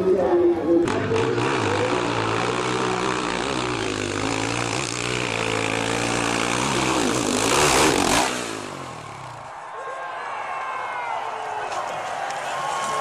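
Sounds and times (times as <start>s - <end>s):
dirt bike engine revving: 0.8s - 9.7s.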